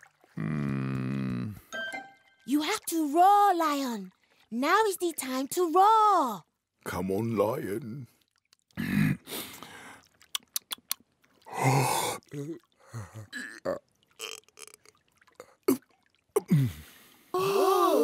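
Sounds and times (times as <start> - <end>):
weak throaty croaks and gulps: 0.1 - 1.7, 7.8 - 16.7.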